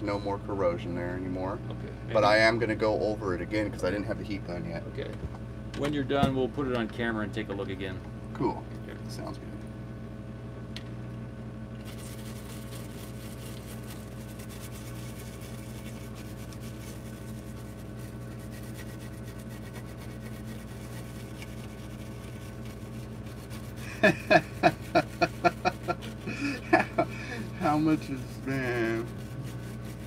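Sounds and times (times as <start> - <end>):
steady low hum: 0.0 - 30.0
toothbrush scrubbing circuit board: 11.8 - 30.0.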